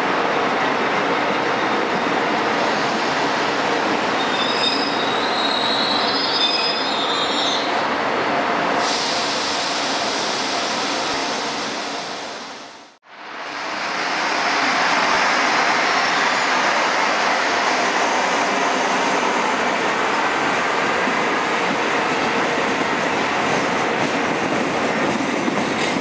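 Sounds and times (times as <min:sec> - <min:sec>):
train coaches rumbling on rails: 0:00.0 - 0:26.0
train wheels squealing: 0:04.2 - 0:07.8.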